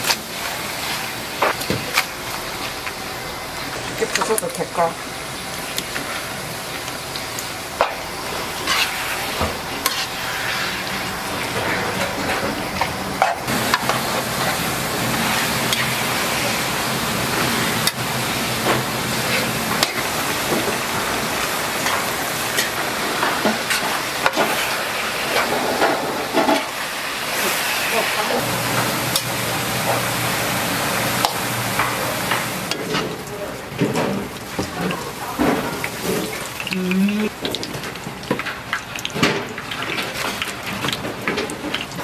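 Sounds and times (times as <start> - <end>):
meat sizzling in a wok: 0.0 - 33.2
metal utensil scraping a pan: 8.6 - 9.2, 9.8 - 10.9.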